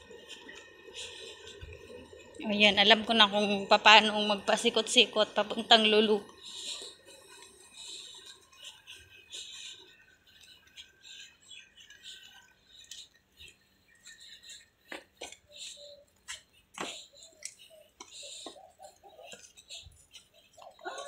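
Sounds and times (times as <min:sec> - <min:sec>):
footsteps on pavement: 0:14.9 - 0:20.0.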